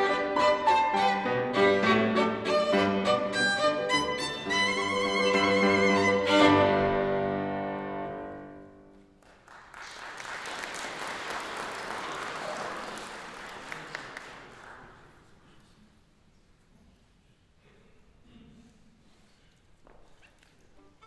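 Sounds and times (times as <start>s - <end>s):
violin and piano chord: 0.0s - 8.6s
audience applause: 9.2s - 15.3s.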